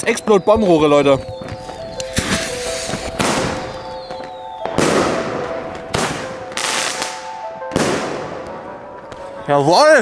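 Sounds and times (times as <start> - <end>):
firework bangs: 2.1 - 8.6.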